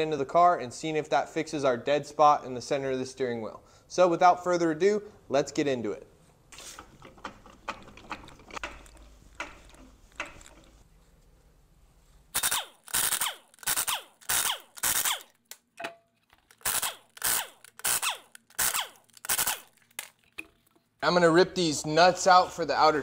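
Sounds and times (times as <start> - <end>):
impact wrench bursts: 12.3 - 15.5, 16.5 - 19.8.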